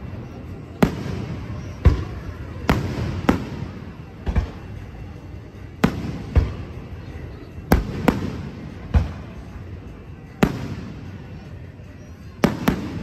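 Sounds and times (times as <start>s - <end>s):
fireworks bursting: 0.8s - 4.6s, 10.3s - 11.3s, 12.4s - 13.0s.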